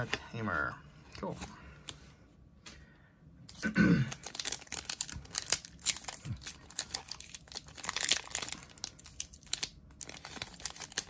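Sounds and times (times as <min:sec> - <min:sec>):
foil wrapper crinkling and tearing: 0:03.5 - 0:11.0.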